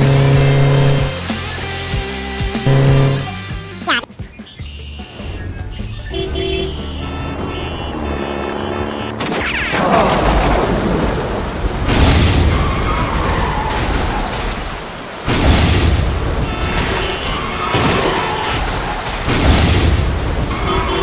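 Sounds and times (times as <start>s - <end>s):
light background music: 0.1s - 9.2s
lightning crackling: 9.8s - 21.0s.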